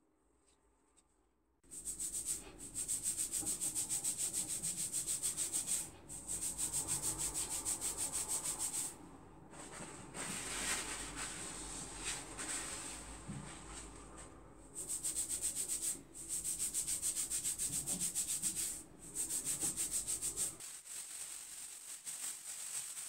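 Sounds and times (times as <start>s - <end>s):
fingers rubbing hair: 1.7s - 8.9s, 14.8s - 20.6s.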